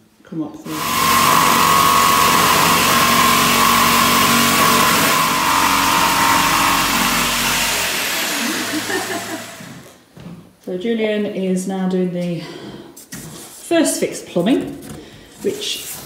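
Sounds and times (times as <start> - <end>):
power tool high whine: 0.7 - 10.0.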